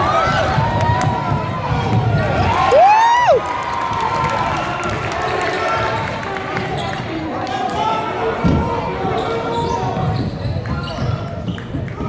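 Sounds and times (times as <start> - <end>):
loud shout: 0.0 - 6.0
crowd cheering and chattering: 0.0 - 12.0.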